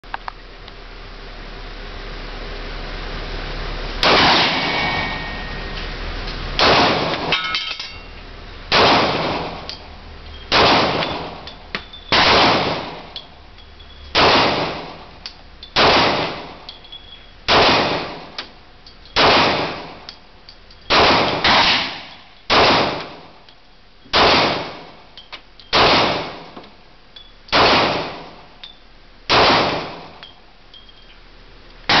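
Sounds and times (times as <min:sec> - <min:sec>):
faint metallic ring: 0:04.6 - 0:06.1, 0:27.1 - 0:27.4, 0:30.2 - 0:31.2.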